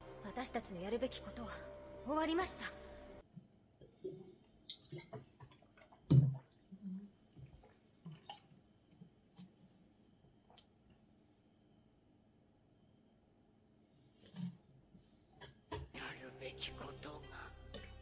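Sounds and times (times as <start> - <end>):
people sipping and swallowing: 3.8 - 8.5.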